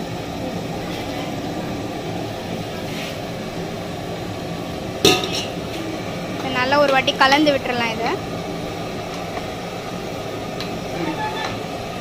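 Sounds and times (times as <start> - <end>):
gas burner roaring: 0.0 - 12.0
sharp metallic clank: 5.0 - 5.6.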